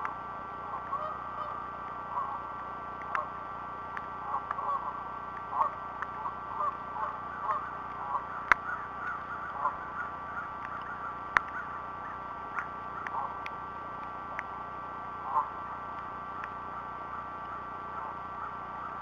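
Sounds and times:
steady high hum: 0.0 - 19.0
waterfowl calling: 0.6 - 3.4, 4.1 - 14.4, 15.1 - 19.0
sharp clicks: 3.0 - 3.3, 5.3 - 6.8, 10.5 - 14.6, 15.9 - 16.6.

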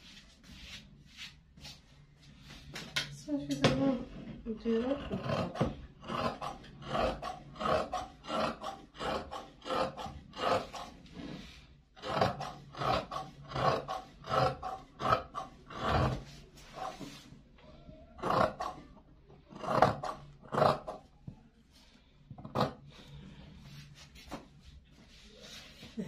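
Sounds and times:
shears cutting cloth: 4.8 - 17.2, 18.2 - 18.8.

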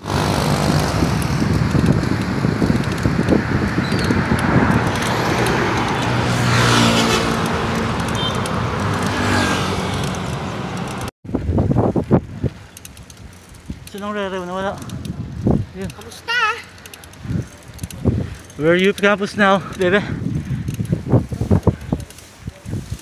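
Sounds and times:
vehicle engine humming: 0.0 - 11.1
road traffic noise: 0.0 - 23.0
wind rumbling on microphone: 0.0 - 23.0.

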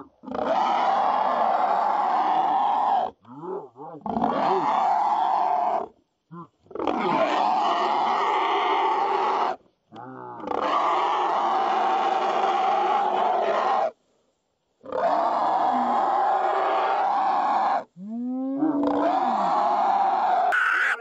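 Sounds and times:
hog screaming: 0.3 - 3.1, 4.1 - 5.9, 6.8 - 9.6, 10.5 - 13.9, 14.9 - 17.9, 18.6 - 21.0
hog grunting squeals: 18.5 - 21.0.

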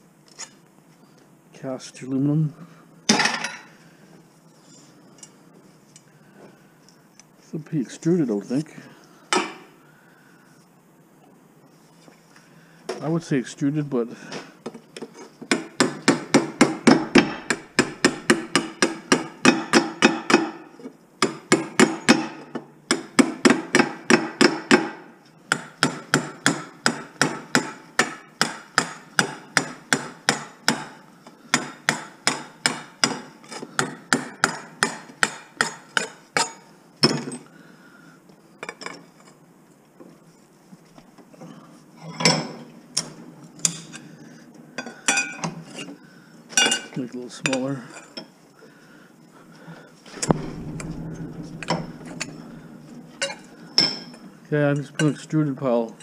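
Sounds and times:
hammer striking metal pole: 16.3 - 20.6.

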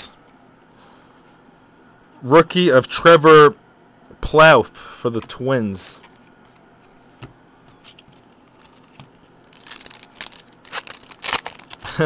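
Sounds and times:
foil wrapper crinkling and tearing: 7.9 - 12.0.

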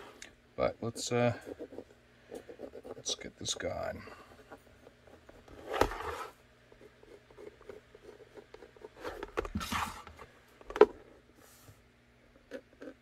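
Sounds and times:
plastic holster scraping: 5.2 - 6.4.

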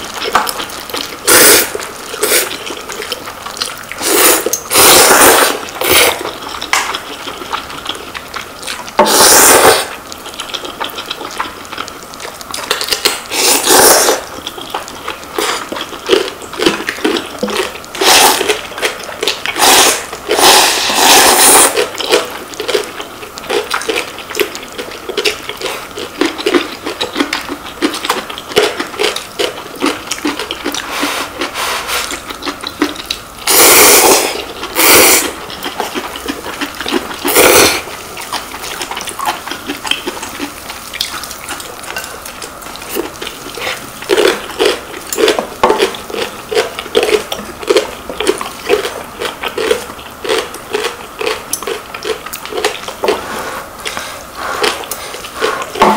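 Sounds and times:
chewing: 0.0 - 55.9
noodles slurped: 0.0 - 55.9
broth sipped: 13.0 - 14.3, 17.4 - 21.8.

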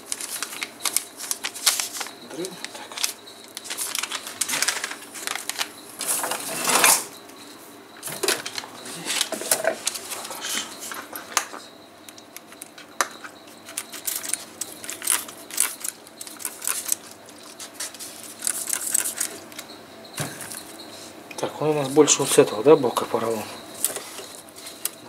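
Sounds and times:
foam strip rustling and crinkling: 0.0 - 6.9, 8.4 - 11.3, 13.6 - 19.7, 23.8 - 25.0.

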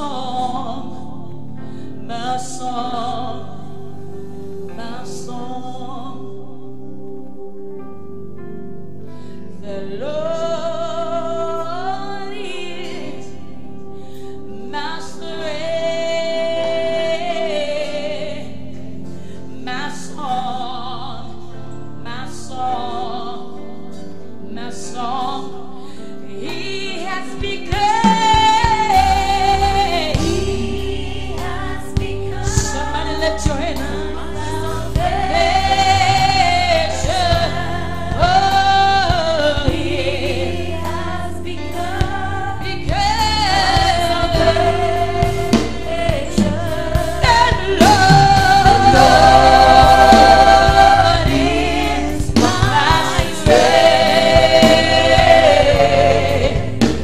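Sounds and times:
woman singing gospel song: 0.0 - 6.9, 9.6 - 57.0
sustained accompaniment: 43.5 - 57.0
bass and beat: 43.8 - 57.0.

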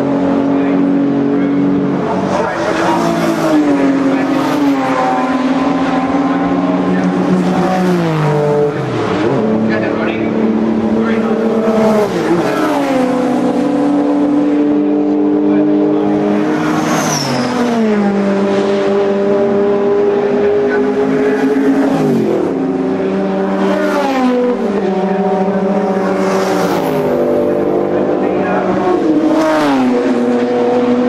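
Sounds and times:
racing cars passing at speed: 0.0 - 31.0.

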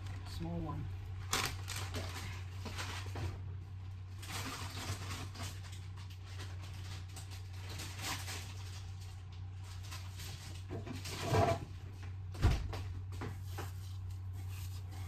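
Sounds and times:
steady low hum: 0.0 - 15.0
faint knocks and rustles: 9.6 - 15.0.

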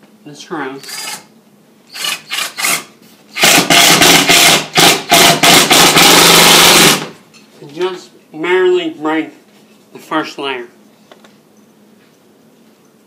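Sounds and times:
impact driver rattling: 3.4 - 7.2.

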